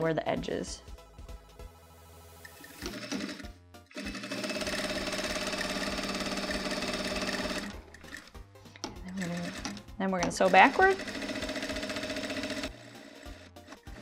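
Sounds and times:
sewing machine stitching: 0:02.5 - 0:08.3, 0:09.0 - 0:14.0.

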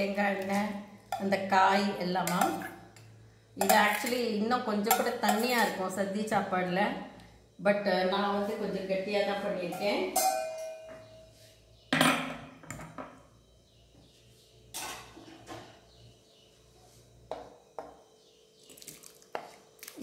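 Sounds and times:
metal ladle clinking on glass bowls: 0:03.6 - 0:04.2, 0:04.9 - 0:05.7, 0:09.7 - 0:11.0.

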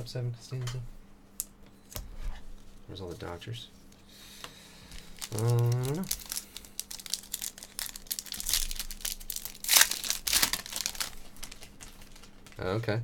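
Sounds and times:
foil wrapper tearing and crinkling: 0:05.0 - 0:12.8.

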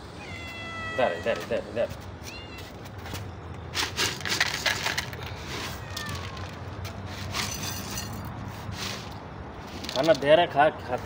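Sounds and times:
dry cat food rattling: 0:03.6 - 0:06.7.

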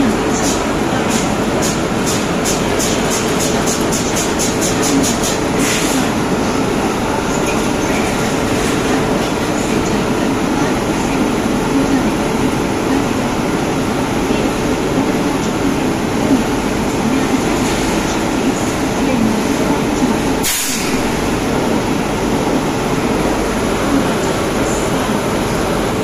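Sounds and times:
electric locomotive humming: 0:00.0 - 0:26.0.

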